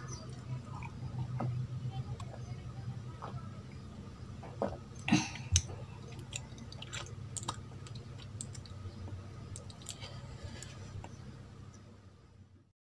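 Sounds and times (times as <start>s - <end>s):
chewing clicks: 5.0s - 8.8s, 9.5s - 11.1s.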